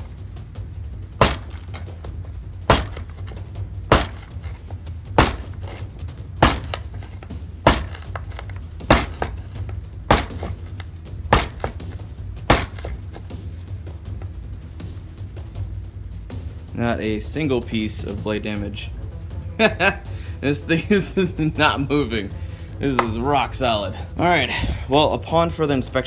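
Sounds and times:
knife tip stabbing wooden board: 0:01.2 - 0:01.9, 0:02.7 - 0:13.3.

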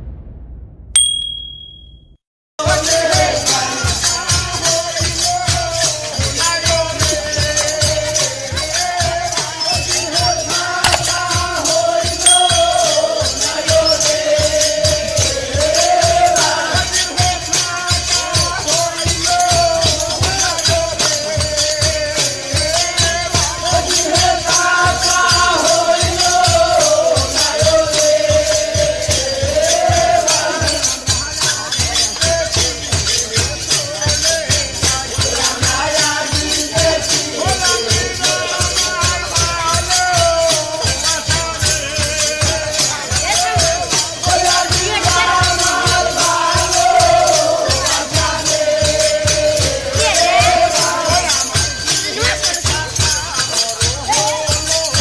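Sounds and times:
tambourine jingling: 0:05.0 - 0:11.5, 0:12.3 - 0:55.0
wavering melody line: 0:12.3 - 0:13.3.

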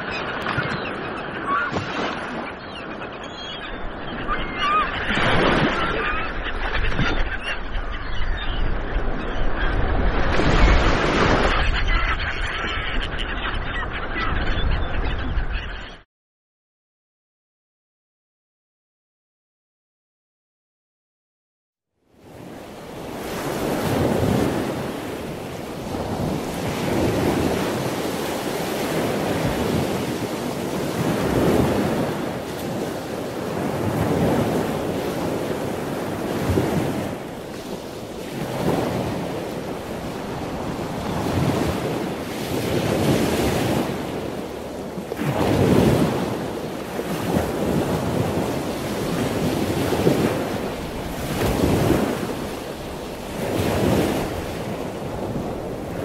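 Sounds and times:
sea waves washing: 0:22.2 - 0:56.0.

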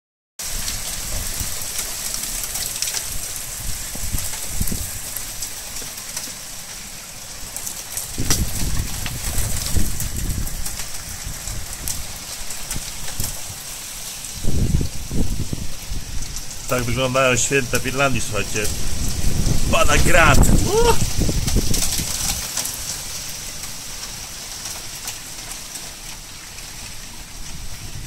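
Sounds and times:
hail falling: 0:00.4 - 0:28.0
low microphone rumbling: 0:17.6 - 0:21.8.

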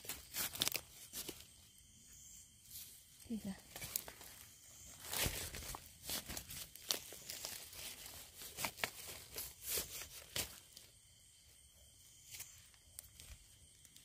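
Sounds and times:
dry leaves crunching: 0:05.0 - 0:10.6.

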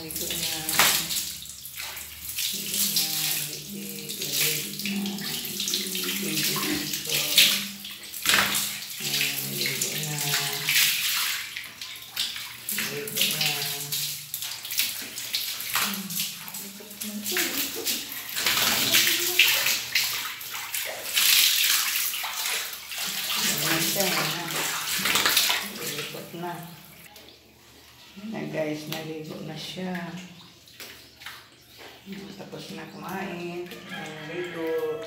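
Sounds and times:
water running from hose: 0:00.0 - 0:27.1
water splashing: 0:00.0 - 0:35.0.

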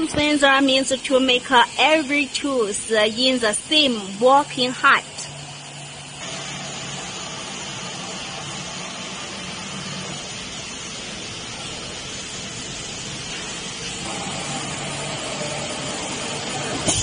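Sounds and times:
cnc router whirring: 0:13.0 - 0:17.0.

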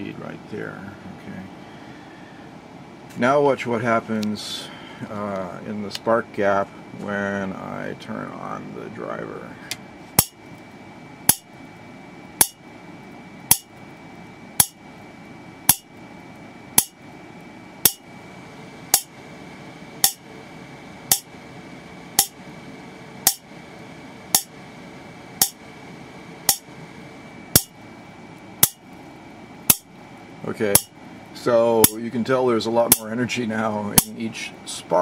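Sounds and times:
faint high whine: 0:03.2 - 0:35.0.

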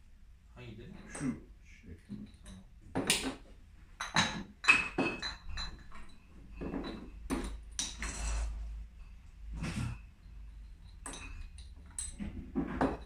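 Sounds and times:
glass bottles clinking: 0:02.2 - 0:08.5, 0:09.1 - 0:13.0.

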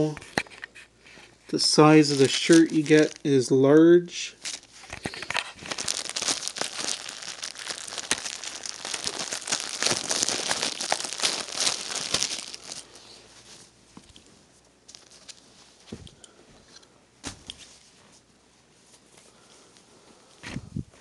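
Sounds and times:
plastic wrapping crinkling and tearing: 0:01.8 - 0:03.5, 0:04.3 - 0:13.1, 0:14.9 - 0:15.4.

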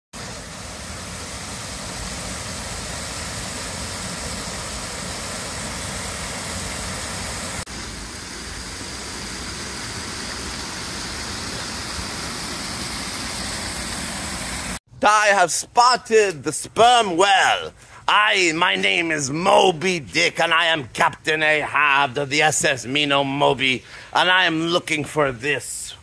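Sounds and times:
water cascading over a weir: 0:00.2 - 0:14.8.

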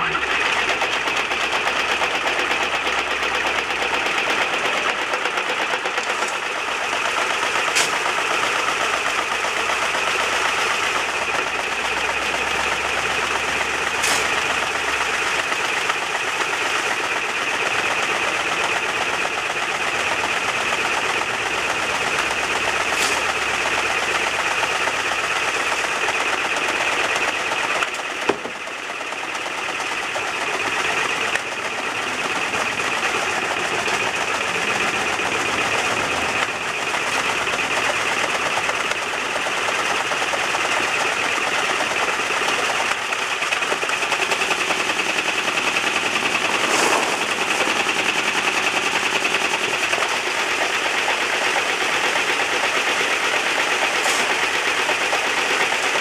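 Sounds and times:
reciprocating saw shaking sifter box: 0:12.9 - 0:56.0.

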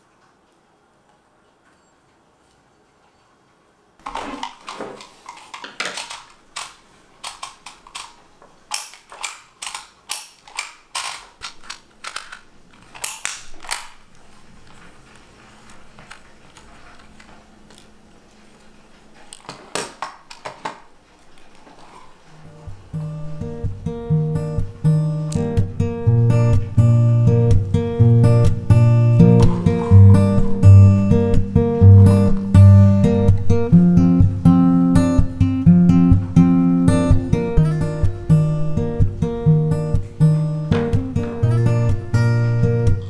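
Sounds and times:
label maker clicking and crunching: 0:04.0 - 0:14.9.

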